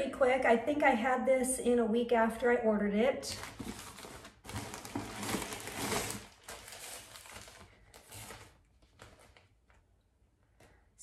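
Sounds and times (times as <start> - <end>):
plastic bag crinkling: 3.3 - 9.8.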